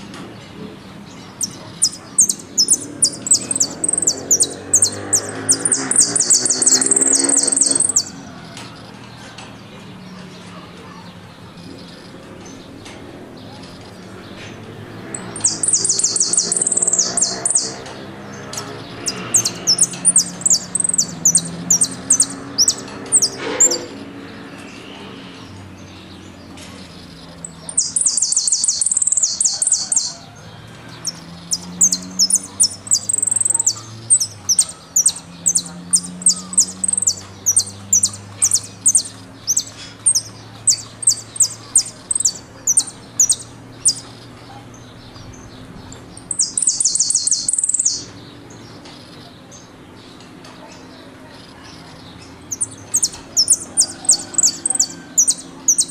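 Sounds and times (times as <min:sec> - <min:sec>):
finch trilling: 0:01.4 - 0:08.2, 0:15.2 - 0:17.8, 0:18.5 - 0:24.0, 0:27.5 - 0:30.2, 0:31.5 - 0:44.0, 0:46.2 - 0:48.1.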